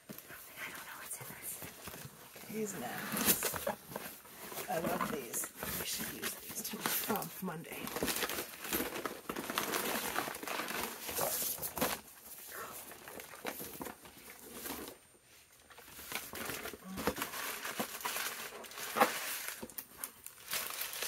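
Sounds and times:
wrapping crumpling and rustling: 0.0 - 21.0.

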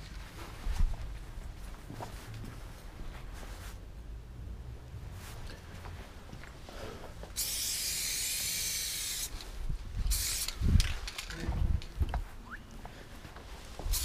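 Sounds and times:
spray can hissing: 7.3 - 9.4, 10.0 - 10.7.

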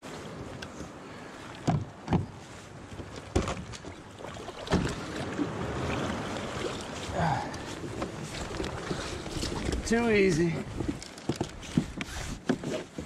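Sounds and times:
surf: 0.0 - 13.0
wind: 0.0 - 13.0
knocks on plastic kayak deck: 3.3 - 3.8.

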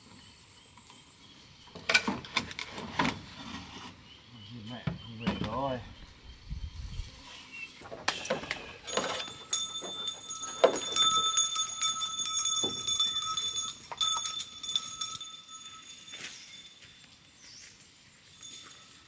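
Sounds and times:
scattered clicks and knocks: 7.9 - 15.3
high ringing jingling: 8.7 - 19.0.

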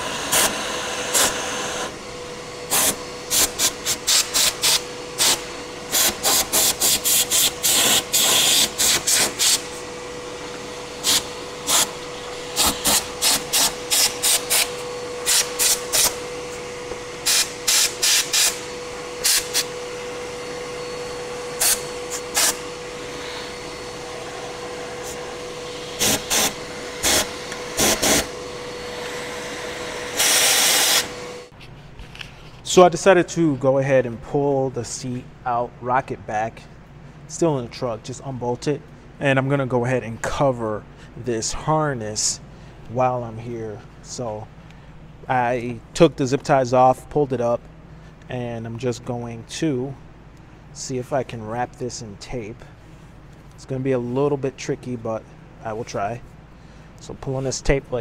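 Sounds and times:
air blow gun hissing blasts: 0.0 - 31.5
shop vacuum whining: 0.0 - 36.1.

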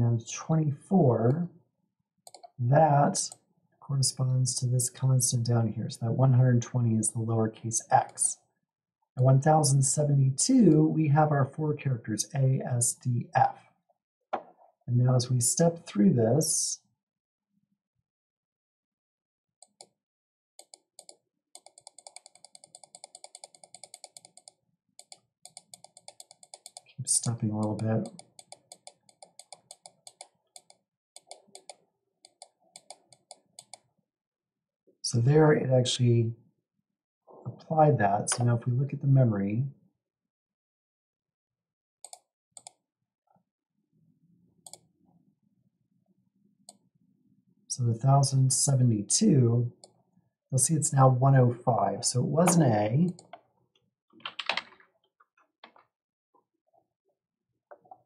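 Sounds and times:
computer mouse clicks: 2.3 - 2.6, 19.6 - 20.0, 20.6 - 33.9, 42.0 - 42.8, 44.6 - 44.9.

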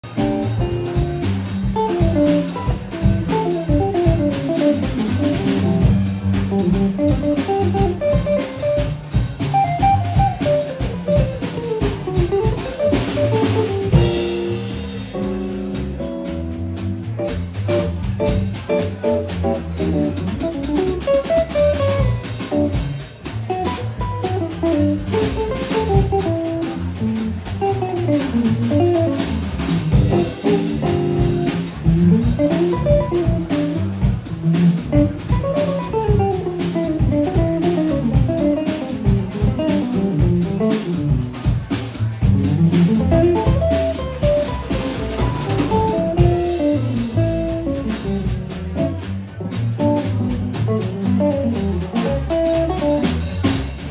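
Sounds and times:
drums and bass: 0.0 - 53.9
electric jazz guitar: 0.0 - 53.9.

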